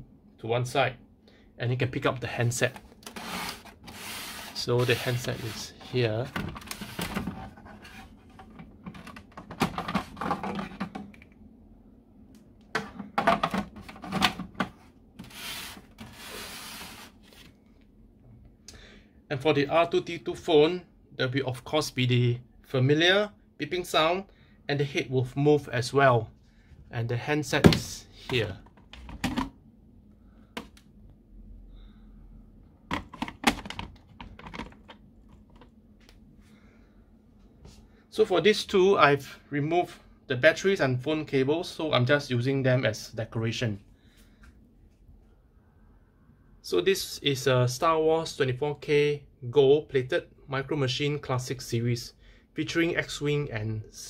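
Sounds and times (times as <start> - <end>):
plastic telephone handset clatter: 32.9 - 35.6.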